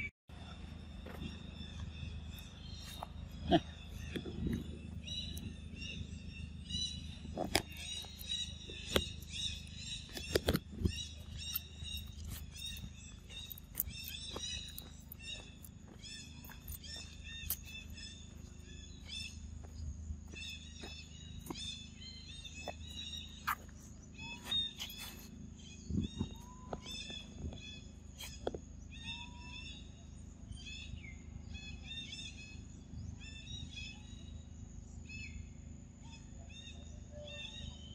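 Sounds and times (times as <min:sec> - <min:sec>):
steady low rumble: 0:00.0 - 0:29.0
small animals chirping: 0:01.0 - 0:30.0.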